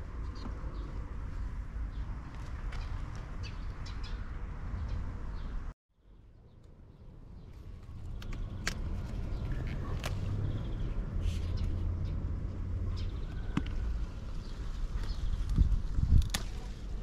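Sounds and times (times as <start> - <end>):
plant stems snapping: 8.2 - 10.3, 14.9 - 17.0.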